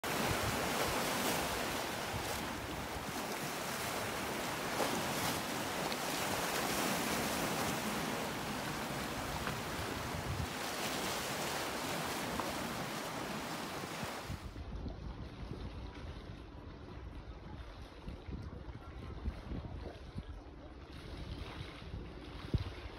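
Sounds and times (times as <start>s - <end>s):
waves washing over rocks: 0.0s - 14.4s.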